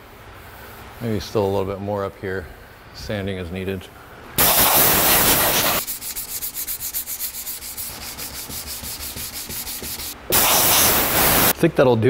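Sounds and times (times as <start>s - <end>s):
compressed air blow gun hissing: 4.4s - 8.2s, 9.1s - 11.6s
hand sanding strokes: 4.4s - 11.5s.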